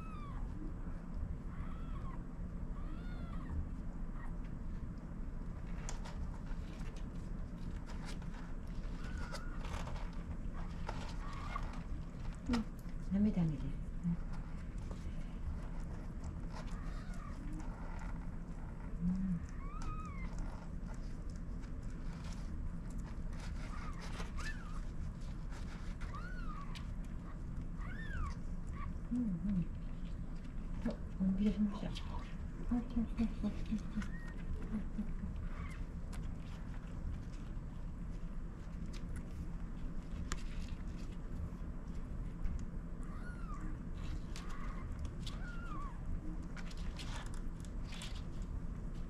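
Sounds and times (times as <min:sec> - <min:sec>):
newborn kittens squeaking: 0:00.0 - 0:03.6, 0:08.8 - 0:10.1, 0:10.7 - 0:11.9, 0:19.4 - 0:20.8, 0:23.6 - 0:25.0, 0:26.0 - 0:29.0, 0:34.0 - 0:34.9, 0:35.5 - 0:35.9, 0:43.0 - 0:46.1
low background hum: 0:00.0 - 0:49.0
low background rumble: 0:00.0 - 0:49.0.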